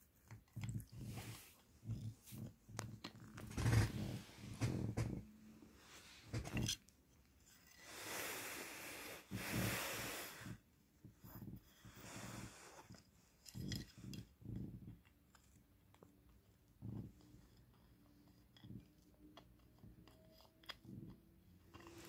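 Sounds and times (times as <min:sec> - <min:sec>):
kitten rustling: 0:00.0 - 0:07.7.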